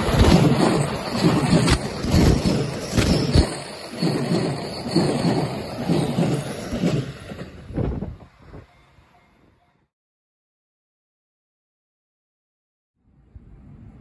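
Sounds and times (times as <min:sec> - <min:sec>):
wheels clattering on rail: 0:00.0 - 0:08.6
electric train passing: 0:00.0 - 0:09.8.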